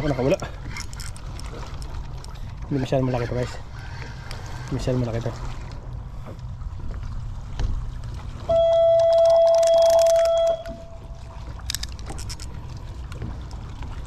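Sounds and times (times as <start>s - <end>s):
horn steady tone: 8.4s - 11.4s.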